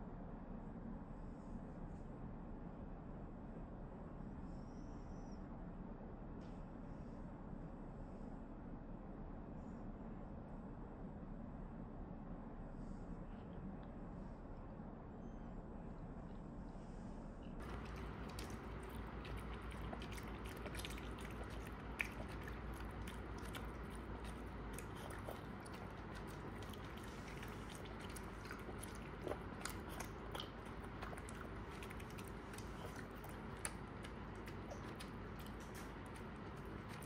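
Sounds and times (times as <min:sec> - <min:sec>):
dog chewing food: 0:17.6 - 0:37.0.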